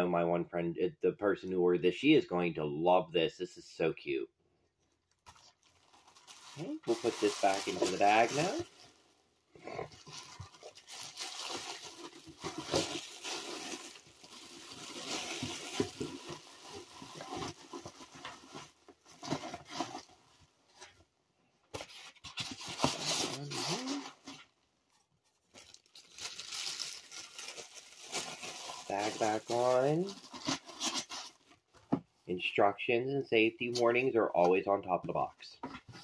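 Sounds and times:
plastic bag crinkling: 5.0s - 9.0s, 10.0s - 18.5s, 25.3s - 31.3s.

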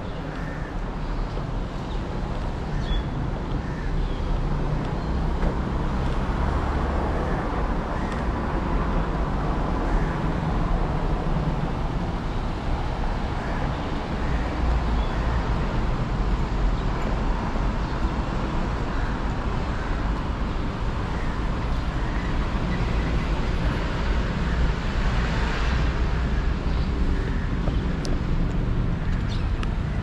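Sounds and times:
road traffic rumble: 0.0s - 30.0s.

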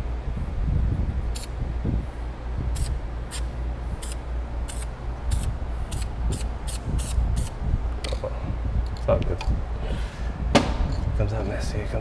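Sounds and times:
steady low rumble: 0.0s - 12.0s
spray paint can hissing: 2.8s - 7.6s.

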